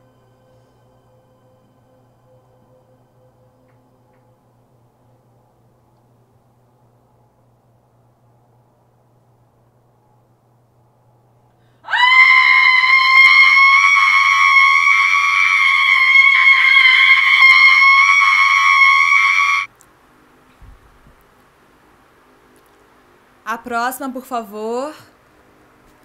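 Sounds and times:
woman screaming high-pitched: 11.9s - 19.7s.

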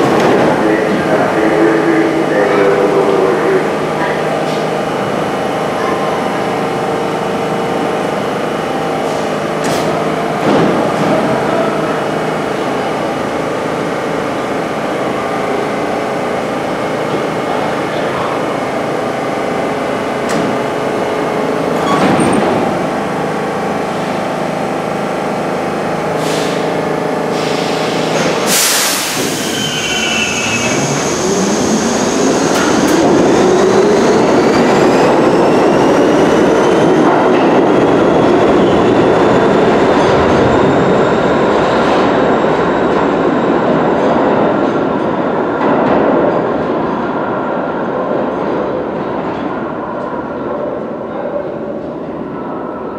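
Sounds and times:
subway train equipment humming: 0.0s - 52.9s.

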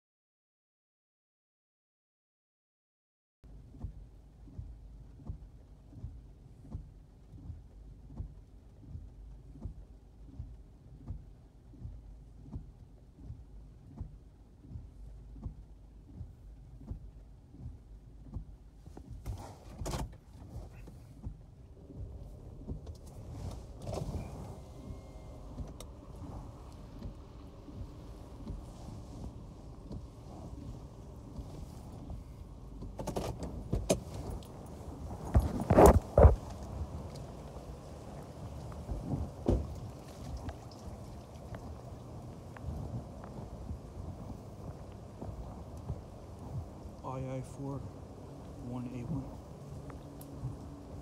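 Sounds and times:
low rumble in car cabin: 3.4s - 51.0s
soft repeating thump: 3.7s - 37.8s, 38.7s - 40.7s.

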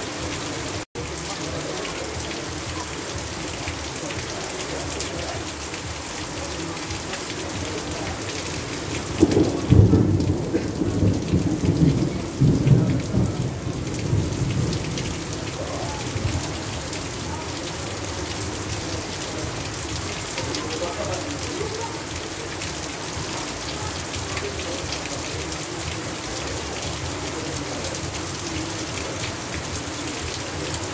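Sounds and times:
heavy rain falling: 0.0s - 30.9s
thunder rumble: 8.8s - 16.8s.

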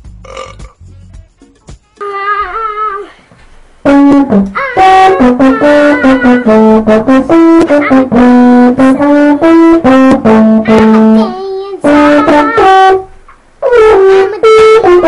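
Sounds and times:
brass jazz music: 3.8s - 15.0s.

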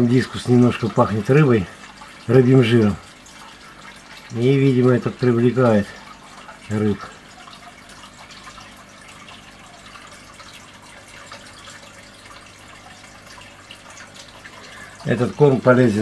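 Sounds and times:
dripping ticks: 0.0s - 16.0s
water trickling and bubbling: 0.0s - 16.0s.

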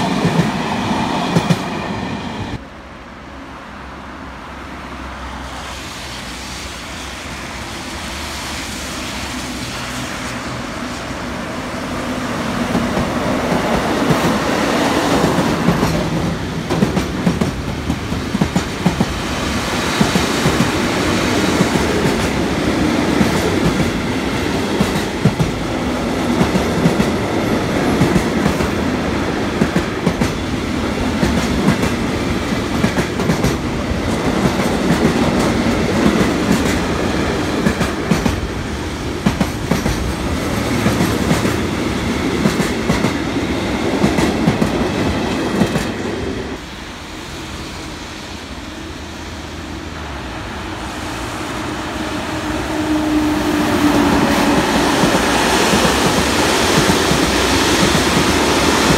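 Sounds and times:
electric locomotive approaching: 0.0s - 58.9s
train wheels clacking over rail joints: 12.7s - 25.7s, 29.5s - 46.1s, 53.5s - 58.9s.

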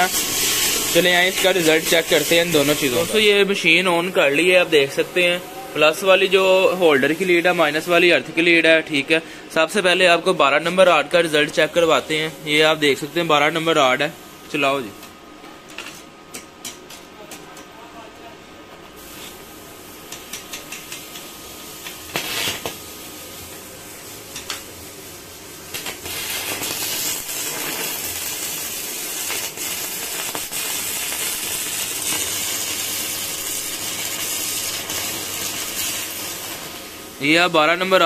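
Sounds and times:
welding rod scratching and sputtering: 0.0s - 3.3s, 20.1s - 22.8s, 25.7s - 36.8s
welding arc crackling: 0.0s - 8.7s, 19.0s - 38.0s.

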